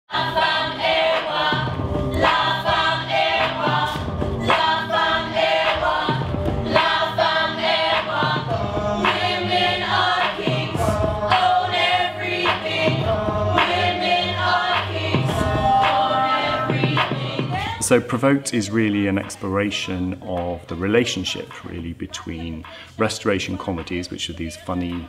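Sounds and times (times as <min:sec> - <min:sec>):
choir singing: 0:00.1 - 0:17.8
low bass line: 0:08.4 - 0:11.4, 0:12.8 - 0:14.4.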